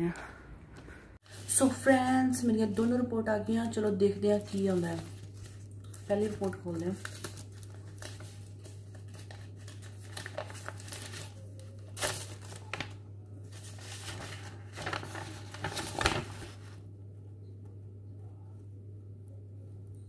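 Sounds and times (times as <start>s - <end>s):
paper rustling and crinkling: 3.6s - 16.8s.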